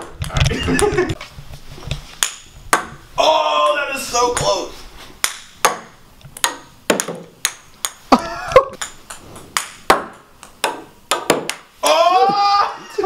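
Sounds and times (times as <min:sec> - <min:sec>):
ping pong balls bouncing: 0:02.2 - 0:03.0, 0:05.2 - 0:12.0.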